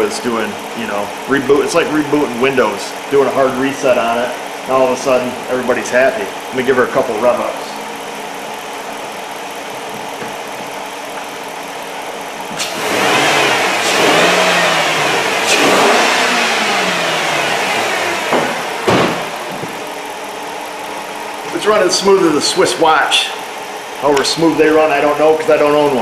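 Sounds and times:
car engine idling and revving: 0.0s - 26.0s
car door shutting: 18.2s - 19.8s.

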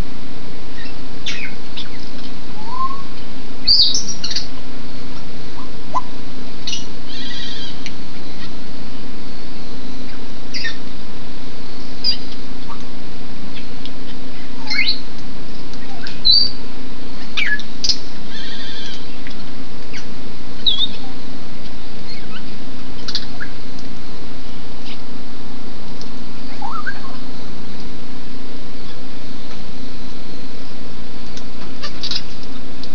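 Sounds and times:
rain falling: 0.0s - 32.9s
parrots whistling and squawking: 0.8s - 2.0s, 6.7s - 7.8s, 10.5s - 10.8s, 14.4s - 15.0s, 15.8s - 16.6s, 17.4s - 19.2s, 20.6s - 21.1s, 26.5s - 27.2s, 31.8s - 32.3s.

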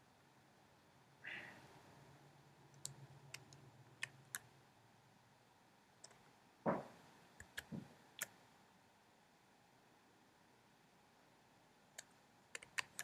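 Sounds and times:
deep thump: 6.7s - 6.9s.

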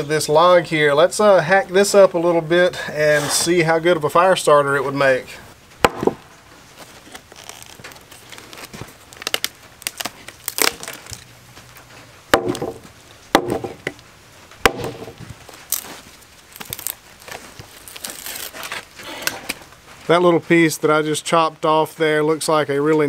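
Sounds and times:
hatchet chopping wood: 5.8s - 6.2s, 12.3s - 14.0s, 14.6s - 15.3s
wood cracking and splintering: 5.8s - 14.0s, 14.6s - 19.7s.

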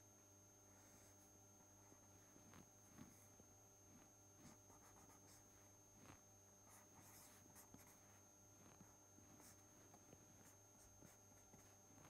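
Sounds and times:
low electrical hum: 0.0s - 12.0s
marker scratching on paper: 4.4s - 11.8s.

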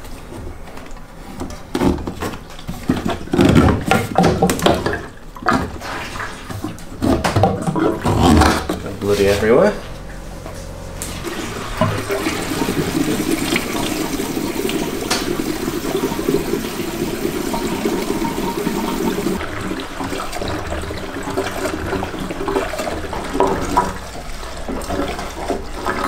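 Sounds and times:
fuel pouring into tank: 11.0s - 26.0s.

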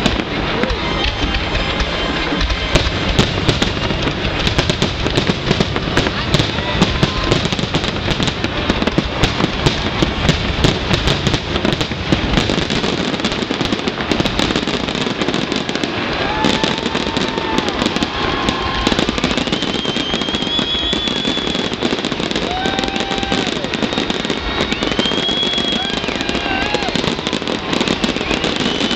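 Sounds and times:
fireworks bursting and crackling: 0.0s - 28.9s
fireworks whistling: 0.0s - 28.9s.

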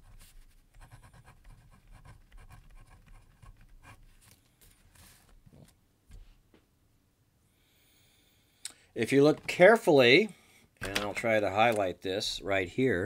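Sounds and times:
pen scratching on paper: 0.0s - 4.0s.

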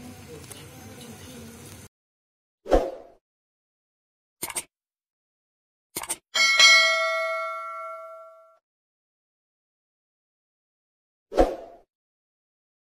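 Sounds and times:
quick clicks: 4.4s - 4.7s, 6.0s - 6.2s
notification bell ding: 6.4s - 8.6s.

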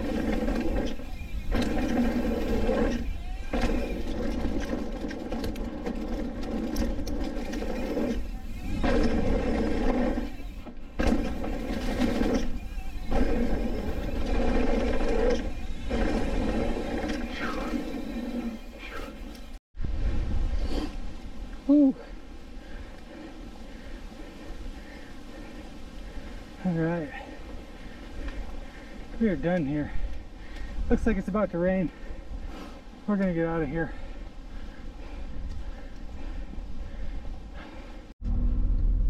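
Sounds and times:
bike freehub buzzing: 0.0s - 21.1s
wind rumble on microphone: 19.8s - 21.7s.

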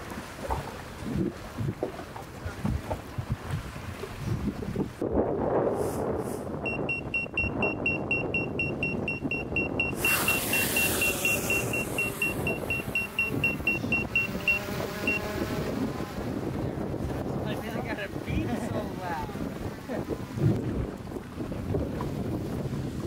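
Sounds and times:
rapid high electronic beeps: 6.7s - 15.3s.

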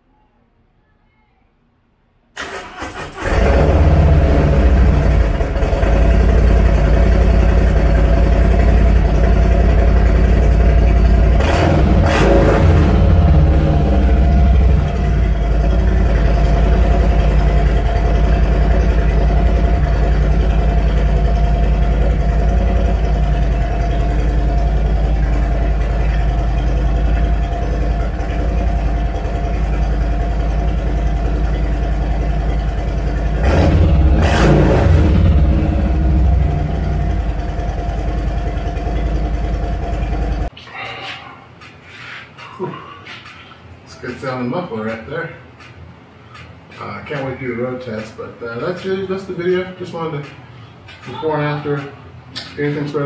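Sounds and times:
motorcycle engine idling: 2.7s - 40.5s.

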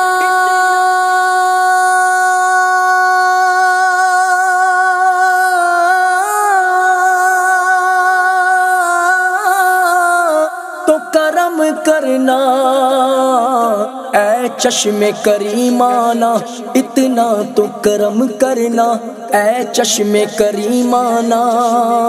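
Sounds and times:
person singing long note: 0.0s - 10.1s.

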